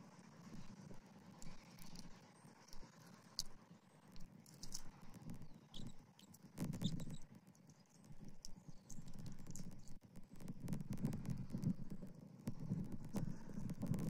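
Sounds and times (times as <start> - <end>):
clicks and taps of sticks: 2.7 - 3.6, 4.2 - 14.0
faint high chirps: 5.4 - 10.0
wind rumble on microphone: 8.2 - 14.0.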